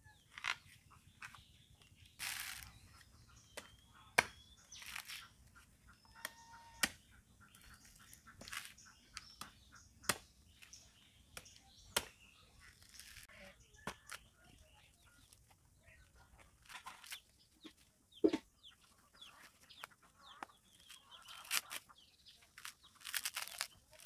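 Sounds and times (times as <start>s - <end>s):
coconut fibres tearing: 2.2s - 2.8s, 3.6s - 5.4s, 6.1s - 7.0s, 7.6s - 9.5s, 11.4s - 13.3s, 20.7s - 24.0s.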